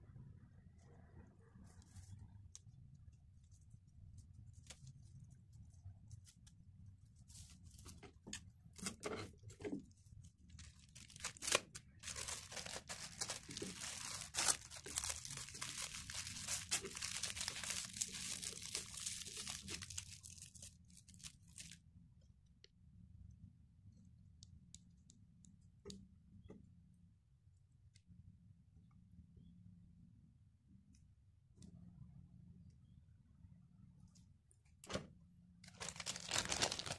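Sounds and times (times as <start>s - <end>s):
plastic film crinkling: 9.8s - 21.8s, 35.6s - 36.9s.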